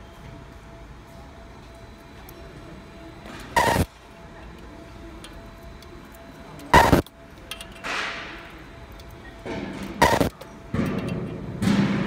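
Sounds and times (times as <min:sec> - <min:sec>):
faint machine hum: 0:00.0 - 0:12.0
laser buzzing burst: 0:03.6 - 0:03.9, 0:06.8 - 0:07.0, 0:10.0 - 0:10.3.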